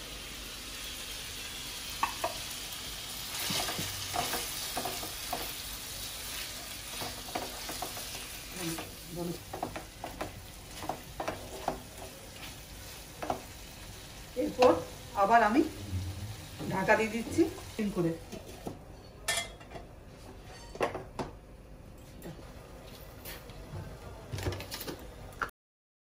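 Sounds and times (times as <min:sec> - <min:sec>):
chicken sizzling in oil: 0:00.0 - 0:18.2.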